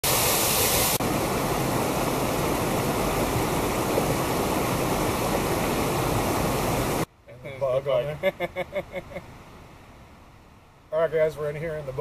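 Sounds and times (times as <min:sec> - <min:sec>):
water rushing from small waterfall: 0:00.0 - 0:07.1.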